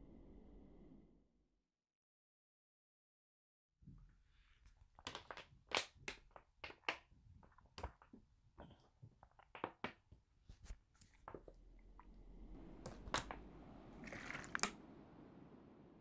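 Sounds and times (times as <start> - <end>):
plastic water bottle crackling: 4.9 - 10.0, 14.0 - 14.8.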